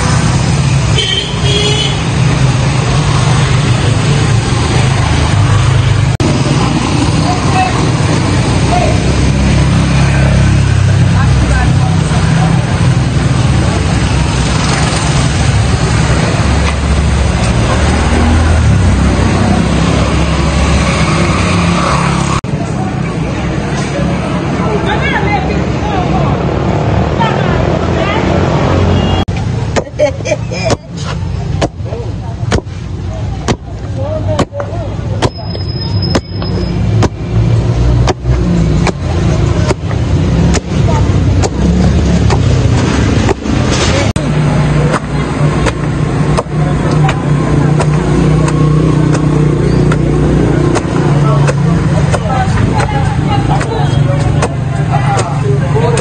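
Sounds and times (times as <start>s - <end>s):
car engines passing: 0.0s - 56.0s
motorcycle engines passing: 0.0s - 56.0s
pestles pounding in wooden mortar: 30.6s - 35.4s, 36.1s - 56.0s.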